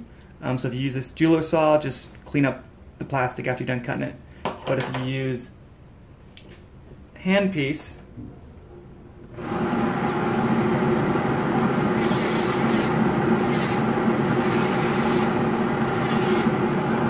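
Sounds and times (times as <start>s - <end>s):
dental handpiece whining hum: 9.4s - 17.0s.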